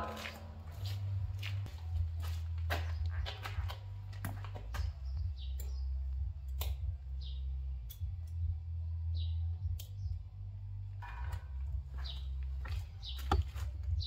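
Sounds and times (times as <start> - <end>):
steady low hum: 0.0 - 14.0
bird chirping: 4.5 - 8.1, 11.9 - 14.0.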